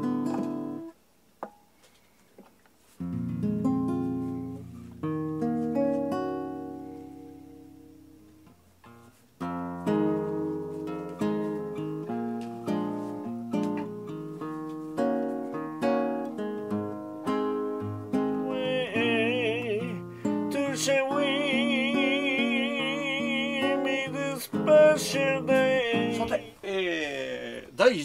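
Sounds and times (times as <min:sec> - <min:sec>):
classical guitar fingerstyle: 0:00.0 - 0:01.7, 0:02.8 - 0:26.9
person singing with vibrato: 0:18.0 - 0:27.8.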